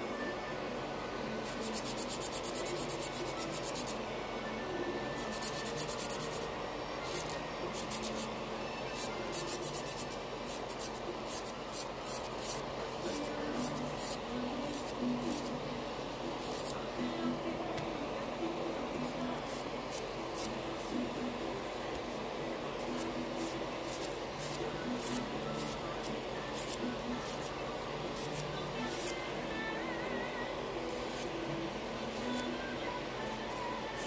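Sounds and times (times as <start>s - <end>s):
nail file rasping on fingernails: 1.5s - 4.0s, 5.2s - 6.5s, 7.1s - 8.3s, 9.0s - 15.5s.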